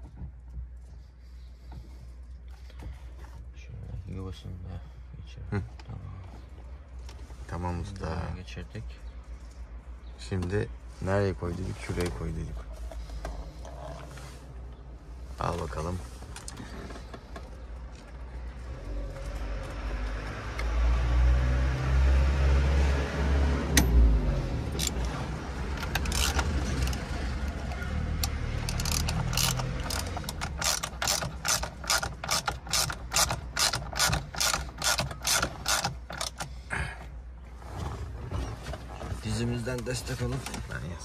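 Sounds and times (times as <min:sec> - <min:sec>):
parts rumbling and rubbing: 0:08.9 - 0:19.8, 0:23.8 - 0:40.9
ratchet wrench clicking: 0:25.8 - 0:27.0, 0:28.2 - 0:36.5.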